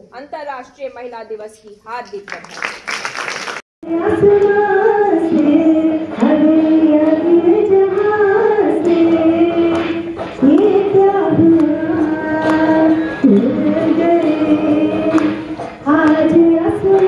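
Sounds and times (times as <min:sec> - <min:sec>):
woman singing: 0:03.8 - 0:17.0.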